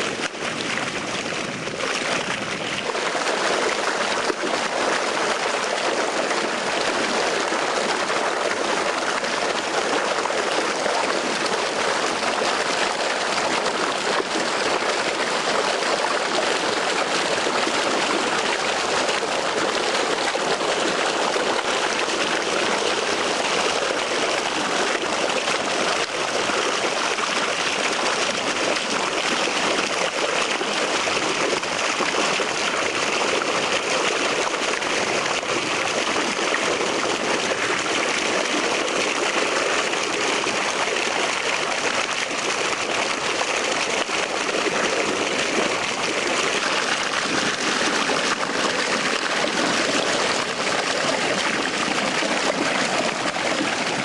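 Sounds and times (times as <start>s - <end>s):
water rushing through a channel: 0.0s - 54.0s.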